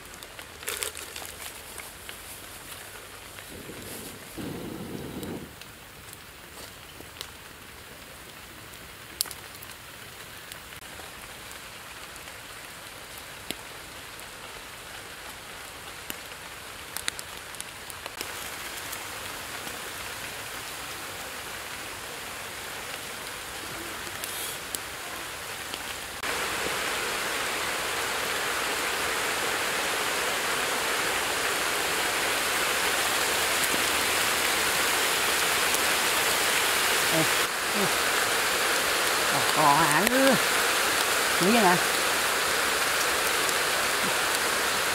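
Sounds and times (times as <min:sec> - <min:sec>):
steady rain falling: 0:00.0 - 0:44.9.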